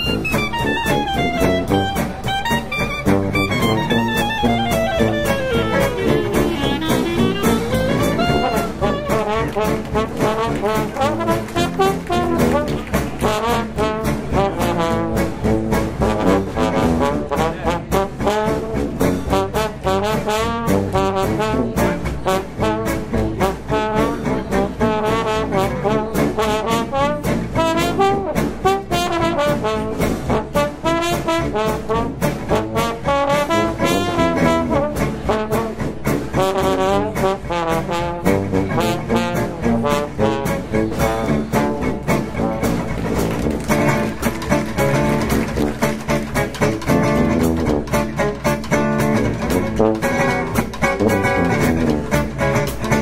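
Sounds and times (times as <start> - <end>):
steady beat: 0.0 - 22.4
trombone: 0.0 - 53.0
trumpet: 0.0 - 53.0.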